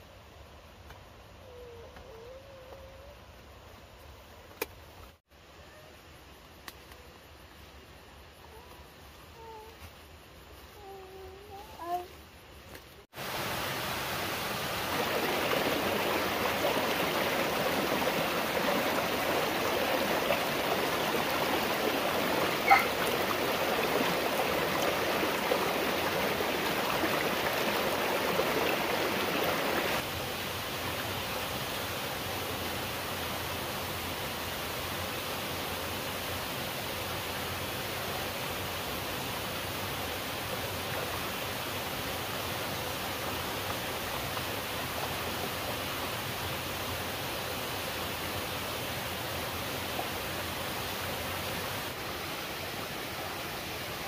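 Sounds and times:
running water rushing: 13.1 - 54.0.

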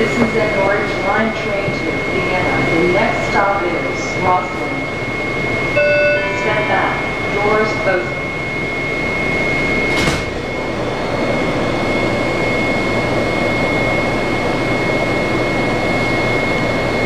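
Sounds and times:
train equipment humming: 0.0 - 11.2
high whine: 4.5 - 17.0.

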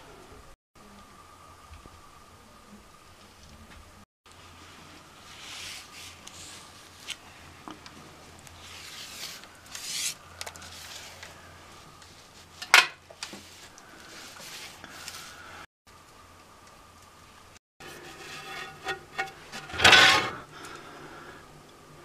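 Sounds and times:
faint steady hum: 0.0 - 22.0
cloth wiping window: 4.4 - 7.1.

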